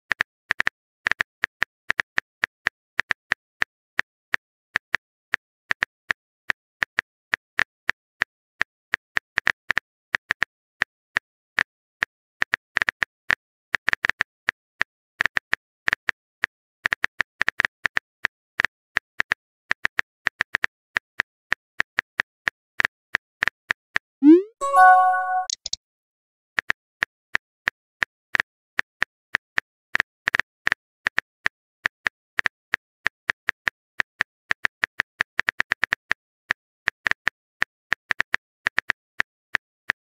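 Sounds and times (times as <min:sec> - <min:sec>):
keyboard tap clicks: 0:24.2 - 0:25.8.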